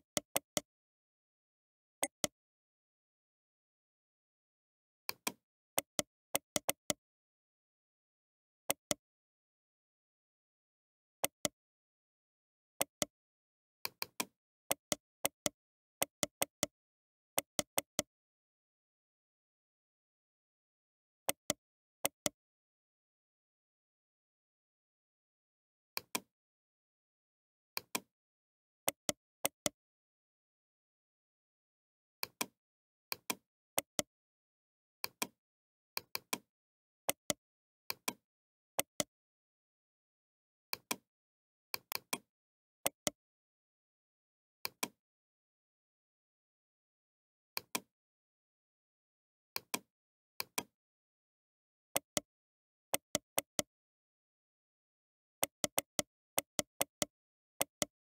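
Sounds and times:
computer mouse button clicking: 55.6 - 57.9.

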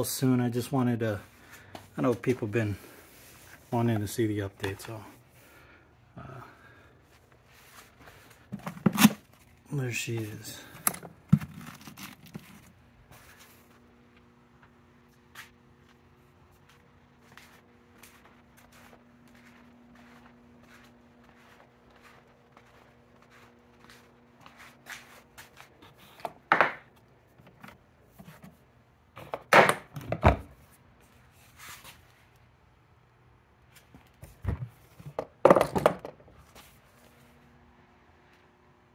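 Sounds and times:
faint steady hum: 0.0 - 38.9
plastic tool box handling: 8.5 - 9.4, 10.7 - 12.7.

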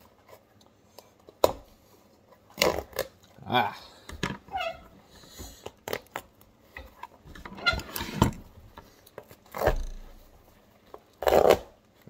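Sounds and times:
leather being torn by hand: 11.2 - 11.8.

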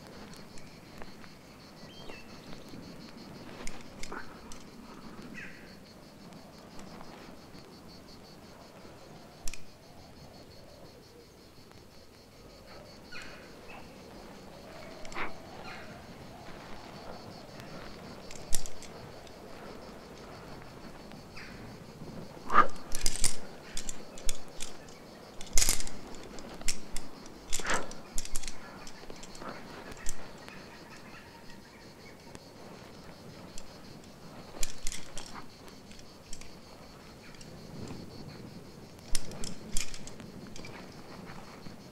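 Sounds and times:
insects chirping: 0.0 - 41.9
metal climbing gear clinking: 0.1 - 5.0, 13.1 - 20.8, 22.5 - 31.8, 32.8 - 38.3, 39.0 - 41.6.

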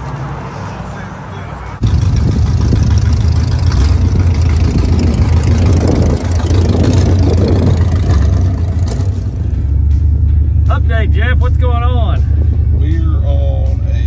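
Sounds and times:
road noise: 0.0 - 14.0
truck engine low rumble: 0.8 - 14.0
wind noise: 1.8 - 9.0.

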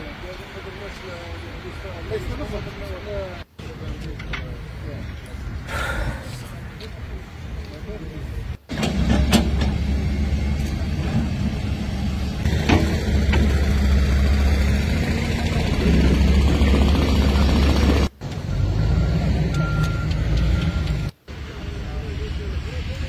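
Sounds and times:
heavy engine droning: 5.3 - 7.0, 7.6 - 23.0.

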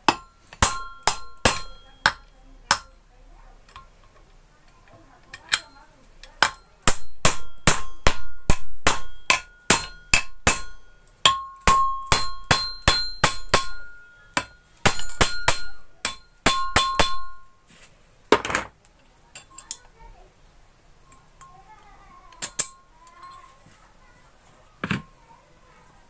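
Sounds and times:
hammer tapping on metal: 0.0 - 3.0, 5.3 - 17.5.

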